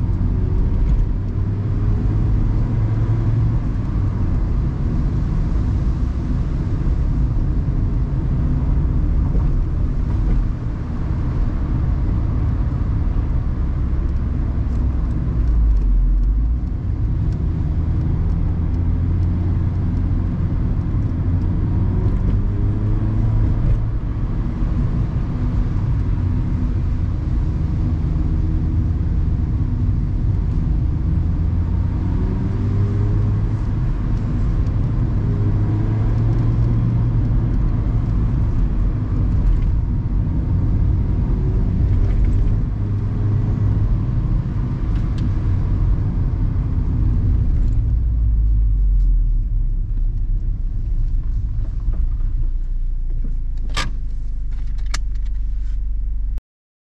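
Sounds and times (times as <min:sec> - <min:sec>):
deep low rumble: 0:00.0 - 0:56.4
tyre and road noise: 0:00.0 - 0:56.4.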